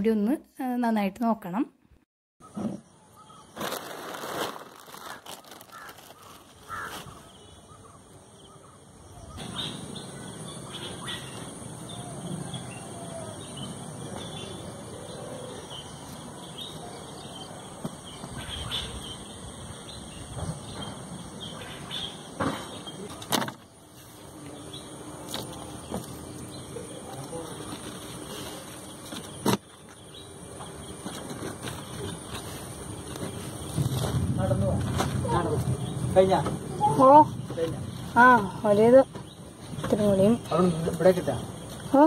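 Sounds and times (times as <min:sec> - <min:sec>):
birds calling: 0:02.4 - 0:34.3.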